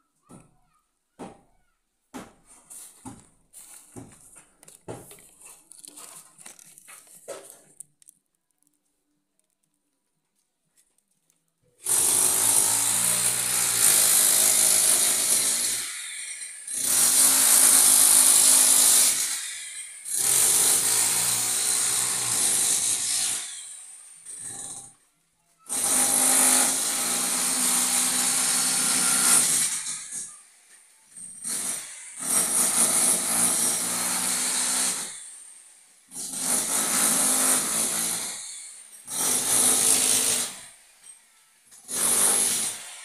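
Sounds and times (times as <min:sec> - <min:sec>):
power tool running: 0:11.8 - 0:24.9, 0:25.7 - 0:30.2.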